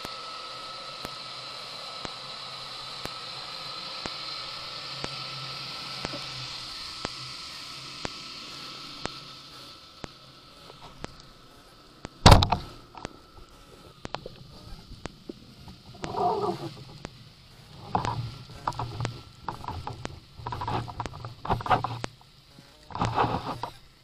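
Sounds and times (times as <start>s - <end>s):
rasping noise bursts: 6.0s - 24.0s
faint underwater clicks: 8.8s - 24.0s
speargun firing crack: 12.2s - 12.7s.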